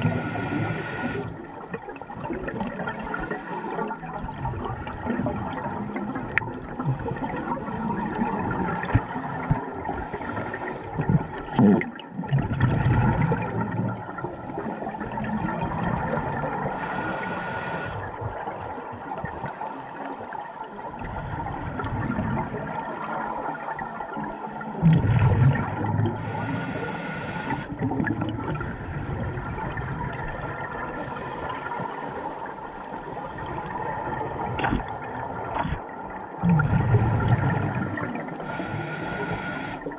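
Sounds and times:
regulator hissing inhalations: 0:00.0 - 0:01.3, 0:03.0 - 0:04.0, 0:09.0 - 0:11.0, 0:16.7 - 0:18.0, 0:26.2 - 0:27.8, 0:37.8 - 0:39.9
gurgling exhaled bubbles: 0:00.0 - 0:16.9, 0:20.8 - 0:26.5, 0:27.6 - 0:31.9, 0:33.0 - 0:39.9
underwater rush: 0:00.0 - 0:39.9.

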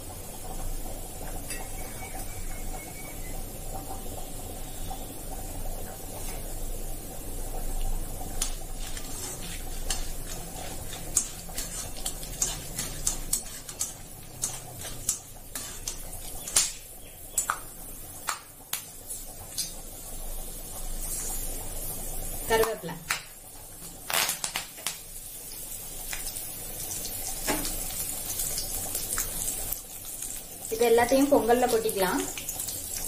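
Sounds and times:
spices sizzling in oil: 0:00.0 - 0:33.0
metal spoon scraping a pan: 0:08.3 - 0:17.5.

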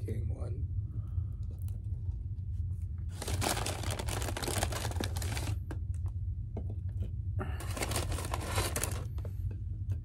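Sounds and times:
steady low hum: 0:00.0 - 0:10.0
paper bag crinkling: 0:03.1 - 0:05.6, 0:07.6 - 0:09.1.

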